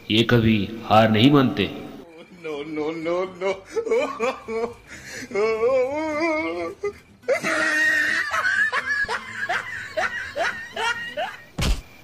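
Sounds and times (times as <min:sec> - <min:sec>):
man laughing: 0:02.0 - 0:11.5.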